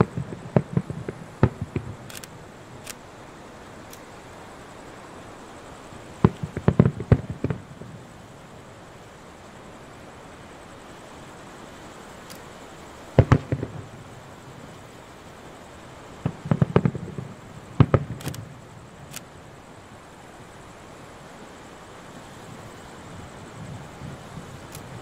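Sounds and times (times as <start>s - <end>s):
firework shells bursting: 0.0s - 3.1s, 6.2s - 8.0s, 12.3s - 14.5s, 16.2s - 19.3s.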